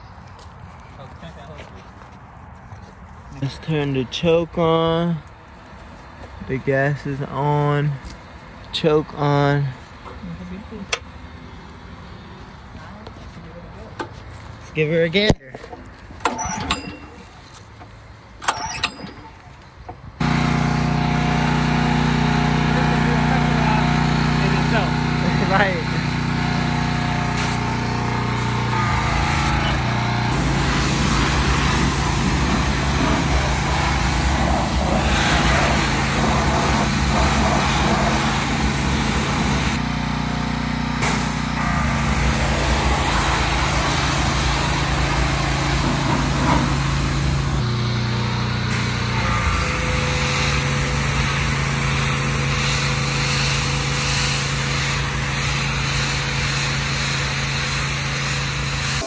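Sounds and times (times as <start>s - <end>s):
high-pressure water jet hissing: 20.2s - 39.8s, 41.0s - 47.6s, 48.6s - 59.0s
pressure washer engine running: 20.2s - 59.0s.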